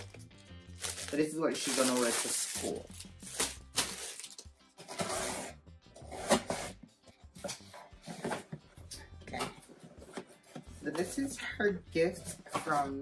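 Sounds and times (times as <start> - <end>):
plastic packaging crinkling: 0.0 - 4.4
rummaging in cardboard box: 0.8 - 5.5.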